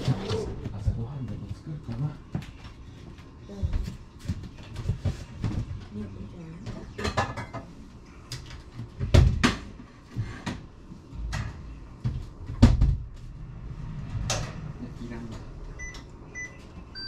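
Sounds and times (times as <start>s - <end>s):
knocks and clatters of objects: 8.4s - 13.4s.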